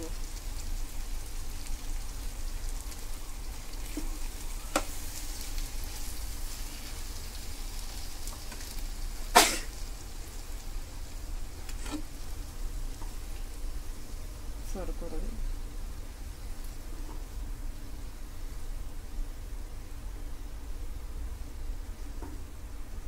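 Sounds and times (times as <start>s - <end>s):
curry sizzling in a pan: 0.0s - 23.0s.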